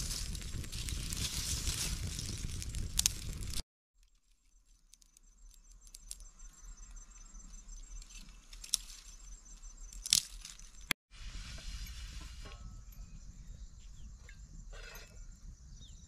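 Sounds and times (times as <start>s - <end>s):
dry twigs snapping: 0.0s - 6.4s, 8.0s - 9.2s, 9.9s - 10.9s.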